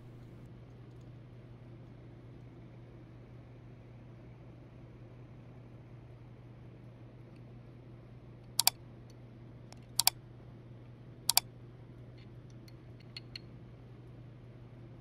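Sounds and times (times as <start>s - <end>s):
low steady hum: 0.0s - 0.5s
faint ticks: 9.8s - 10.1s
wrench clicking metallically: 9.8s - 10.1s.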